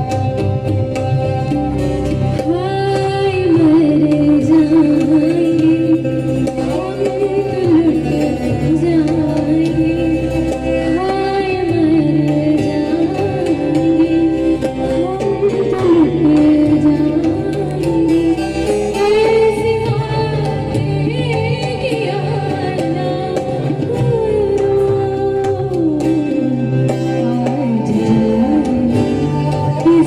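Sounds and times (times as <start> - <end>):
string and keyboard instruments: 0.0 - 30.0
tabla: 0.0 - 30.0
woman singing: 2.3 - 30.0.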